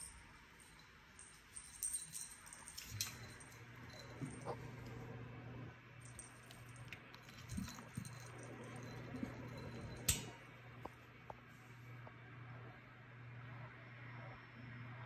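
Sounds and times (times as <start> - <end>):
steady low hum: 0.0 - 15.0
kittens playing on carpet: 0.5 - 5.1, 6.0 - 11.7.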